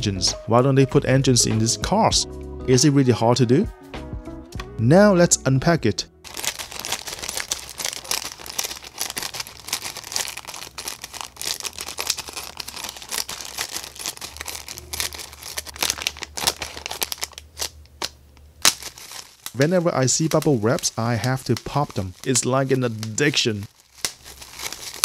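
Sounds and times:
plastic wrapping crinkling: 6.3 - 25.0
scissors cutting plastic: 6.3 - 25.0.

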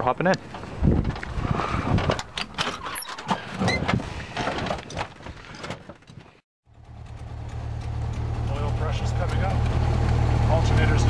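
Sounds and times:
clicks knocks and rattles: 2.0 - 6.4.

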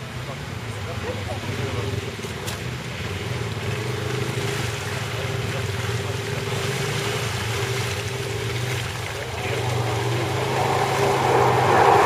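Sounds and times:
water churning and sloshing: 0.3 - 12.0.

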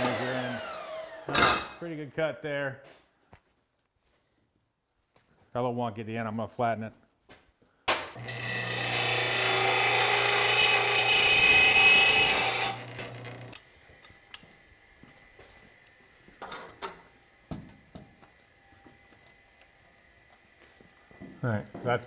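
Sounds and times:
disc sander grinding metal pipe: 0.0 - 1.3, 8.2 - 13.6.

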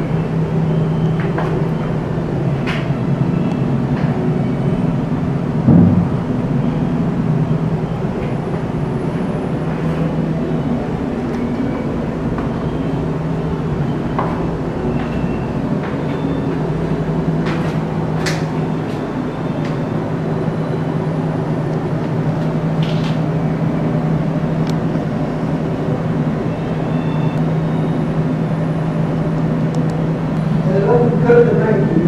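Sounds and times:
low machine hum: 0.0 - 32.0.

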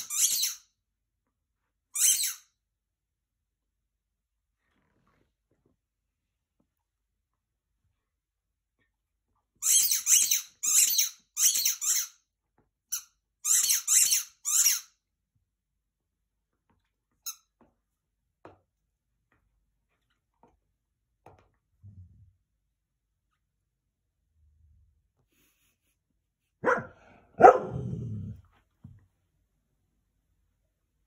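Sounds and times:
squeaky chew toy squeaking: 0.0 - 0.6, 2.0 - 2.5, 9.6 - 12.2, 12.9 - 14.9.

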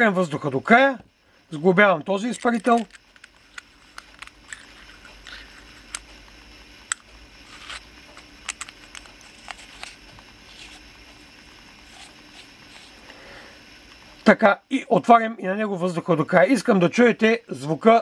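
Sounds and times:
small metal parts clicking: 2.0 - 6.1, 6.9 - 10.8
soft scraping of parts: 2.0 - 6.1, 6.9 - 13.2.

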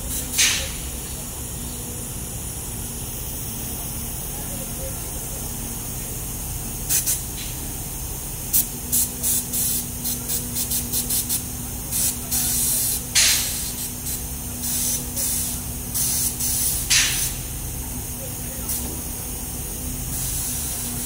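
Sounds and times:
low machine hum: 0.0 - 21.0
paint spray gun hissing: 5.6 - 17.6, 18.7 - 21.0.

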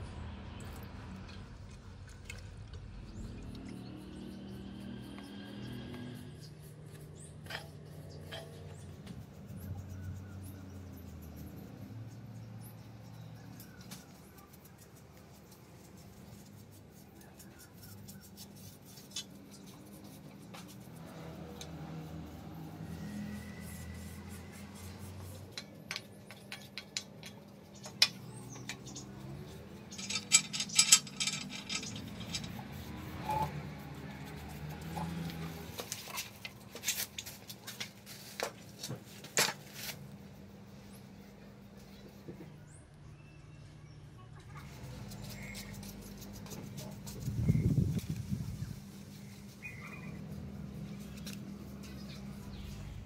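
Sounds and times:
paintbrush strokes: 3.5 - 30.2, 31.5 - 42.4, 44.6 - 53.0.

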